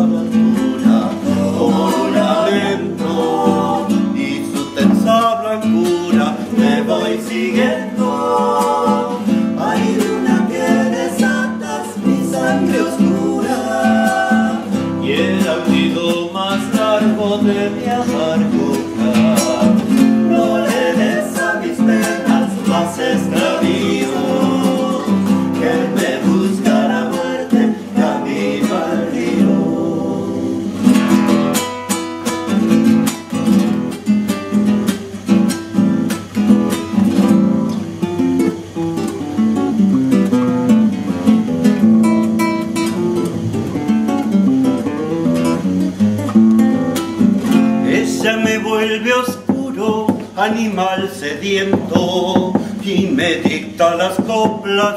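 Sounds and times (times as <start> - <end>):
several voices singing: 0.0 - 31.2, 47.4 - 54.9
acoustic guitar strummed: 0.0 - 54.9.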